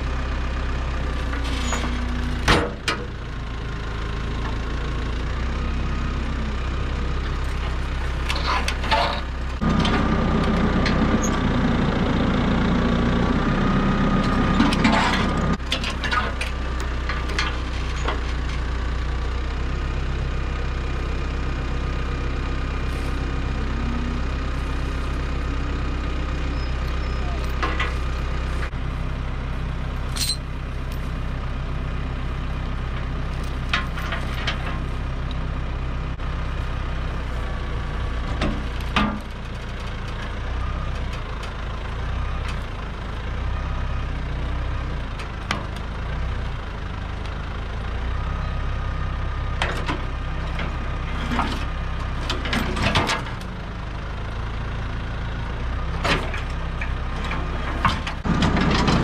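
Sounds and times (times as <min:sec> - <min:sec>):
tractor diesel engine idling: 0:00.0 - 0:59.0
metallic clanks and rattles: 0:07.4 - 0:10.0, 0:14.2 - 0:18.7, 0:27.3 - 0:28.8, 0:30.0 - 0:31.1, 0:32.9 - 0:35.0, 0:38.2 - 0:40.4, 0:49.6 - 0:53.5, 0:56.0 - 0:59.0.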